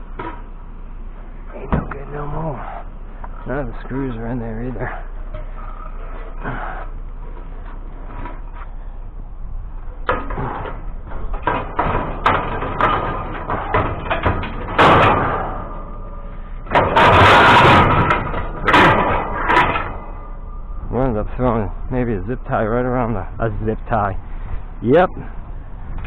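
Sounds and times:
rattling crashes: 9.7 - 22.0
scrap metal knocks and clatters: 10.0 - 20.6.

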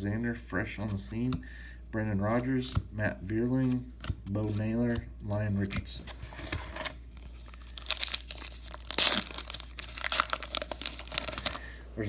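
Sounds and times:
wrapper crinkling and tearing: 7.2 - 11.7.

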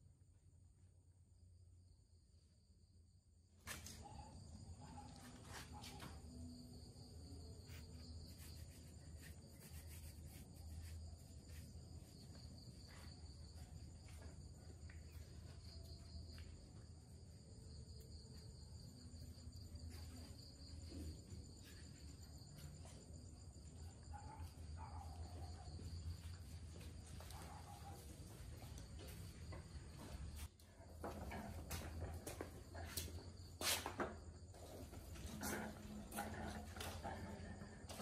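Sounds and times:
insects chirring: 1.8 - 38.0.

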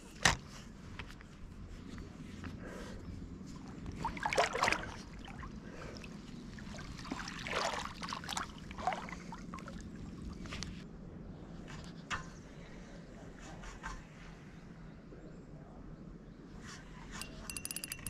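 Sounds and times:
lake water sloshing and splashing: 3.4 - 10.8.

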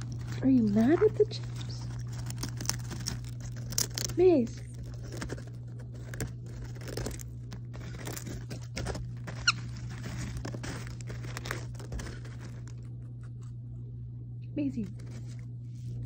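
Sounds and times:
crunching and crinkling chip bag: 0.0 - 13.6, 14.8 - 16.0
parrot squeak: 9.4 - 9.7.

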